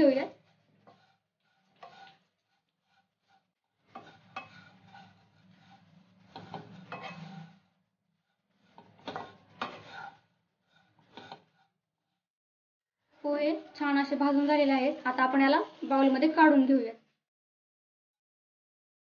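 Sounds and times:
dry flakes rustling in a pan: 0.0 - 7.7.

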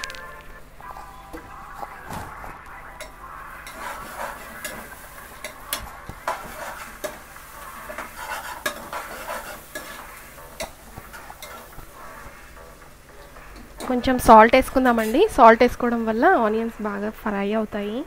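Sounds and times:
light sizzle of frying: 0.0 - 18.0
spoon stirring and scraping: 2.8 - 15.4.

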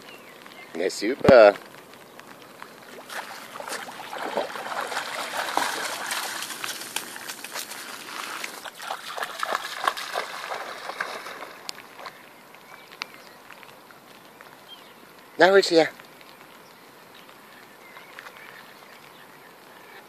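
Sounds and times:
dog splashing through water: 2.9 - 12.2.

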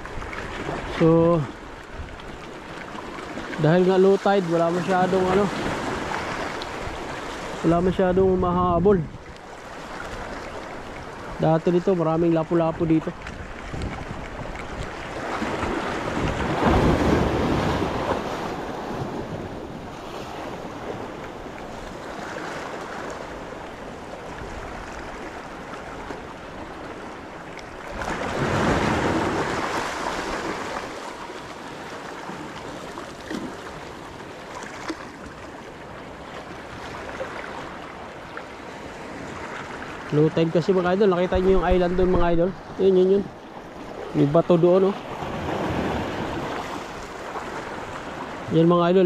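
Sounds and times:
small sea waves washing ashore: 0.0 - 49.0
wind on microphone: 4.9 - 9.4, 12.7 - 25.3, 41.2 - 44.4.

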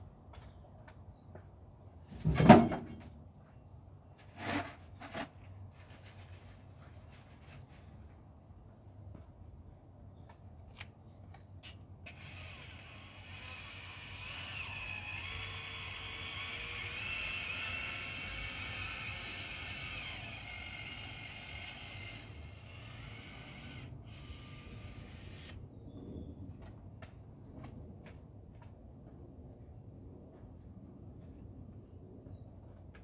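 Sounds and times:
small mechanism whirring: 12.0 - 25.6.

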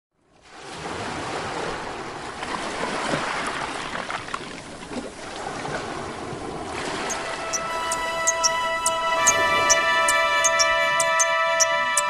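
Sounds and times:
waves breaking on a beach: 0.3 - 8.2.

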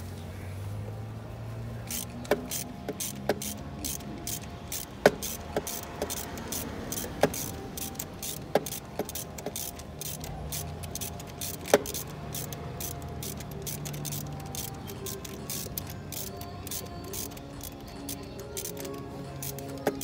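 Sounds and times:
metallic tool clicks and taps: 1.9 - 20.0.

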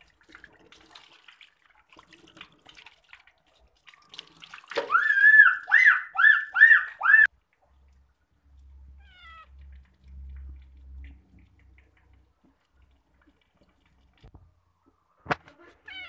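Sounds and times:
water splashing in steel sink: 0.0 - 14.5
cat meowing loudly: 9.0 - 9.5, 15.6 - 16.0.

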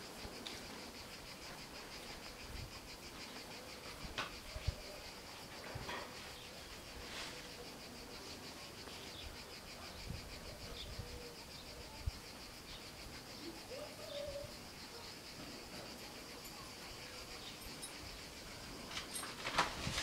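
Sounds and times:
cicadas buzzing: 0.0 - 20.0
dove cooing: 13.4 - 14.6.

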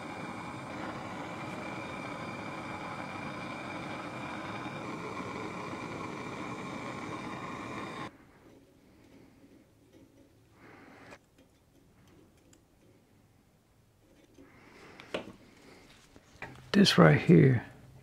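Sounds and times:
propane torch burning: 0.0 - 11.2, 14.3 - 15.8.

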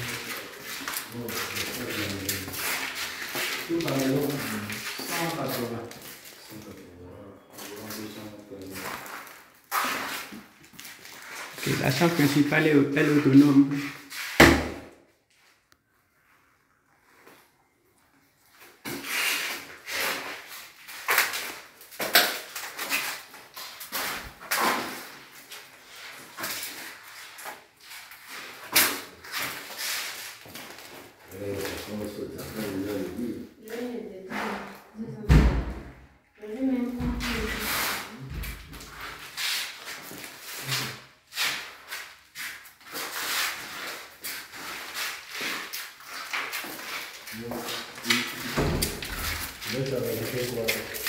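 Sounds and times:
footsteps scuffing on a hard floor: 36.9 - 51.0.

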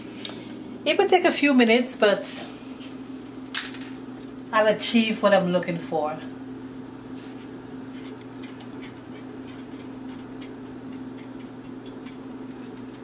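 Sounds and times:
steady low hum: 0.0 - 13.0
ticking of stirred sugar pot: 8.1 - 13.0.

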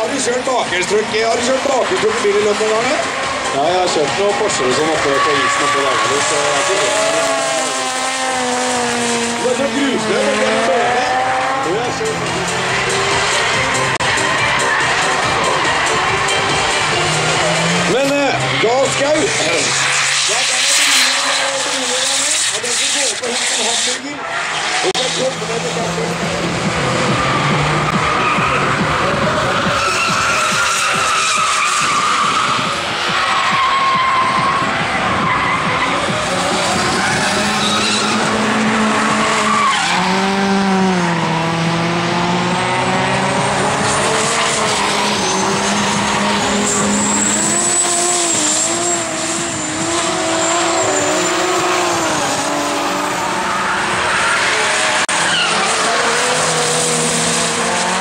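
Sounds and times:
car engines revving high: 0.0 - 58.0
tyres squealing and skidding: 0.0 - 58.0.

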